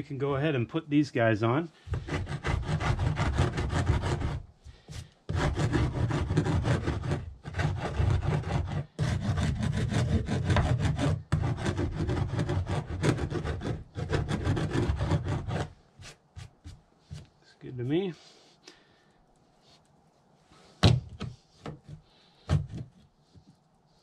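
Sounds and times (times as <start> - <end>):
scraping on wooden deck board: 1.9 - 17.3.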